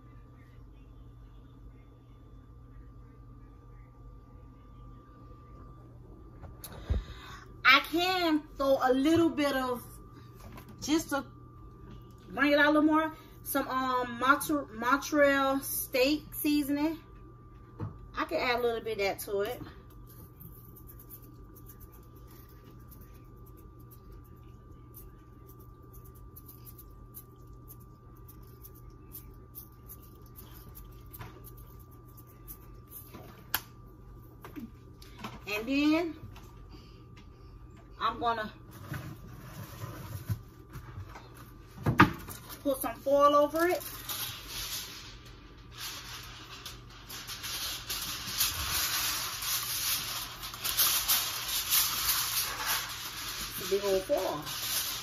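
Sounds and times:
aluminium foil crinkling: 19.9s - 33.7s, 42.3s - 55.0s.

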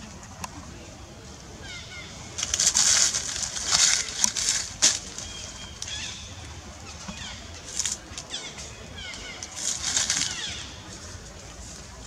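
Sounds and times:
leaves and twigs rustling: 0.0s - 12.0s
small birds chirping: 1.6s - 11.3s
twigs snapping: 2.3s - 6.1s, 7.0s - 10.8s.

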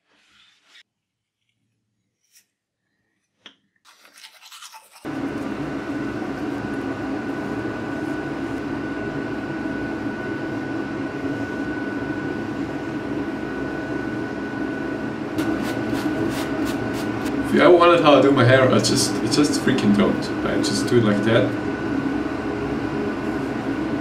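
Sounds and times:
thin steady whine: 5.1s - 24.0s
small electric motor humming: 15.4s - 17.3s.

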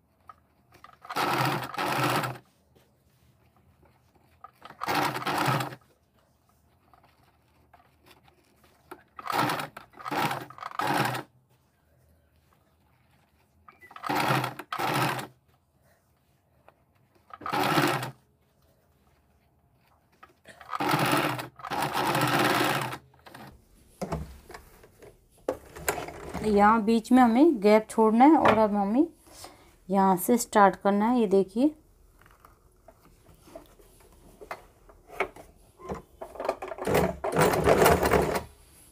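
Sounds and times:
sewing machine stitching: 0.2s - 2.4s, 4.2s - 5.9s, 7.0s - 11.3s, 13.2s - 15.4s, 17.2s - 18.2s, 20.2s - 23.5s, 25.5s - 26.7s, 36.6s - 38.5s.

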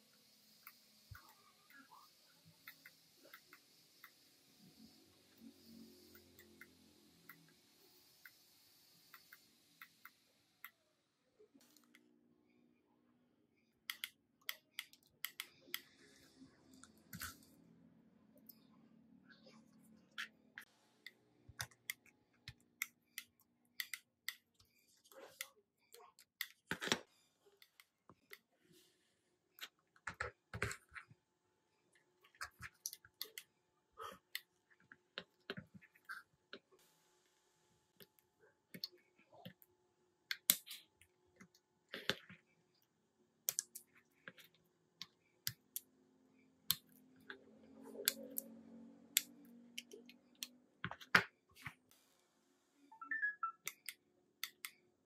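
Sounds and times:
small tools clicking and tapping: 13.9s - 15.9s, 20.1s - 28.5s.

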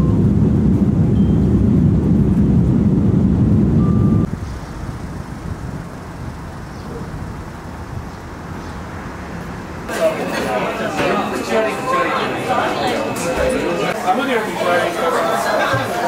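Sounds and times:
airliner cabin rumble: 0.0s - 9.9s
street traffic: 4.2s - 14.0s.

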